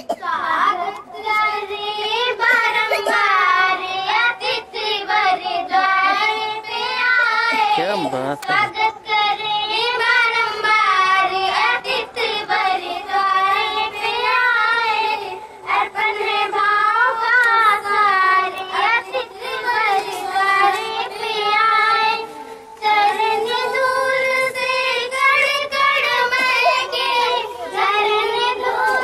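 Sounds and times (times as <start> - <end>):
girl singing: 0.0 - 7.8, 8.4 - 29.0.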